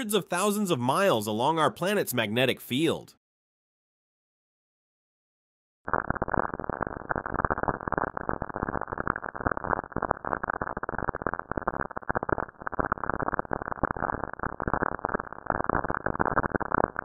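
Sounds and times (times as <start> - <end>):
dense rapid crackling: 5.9 - 17.0.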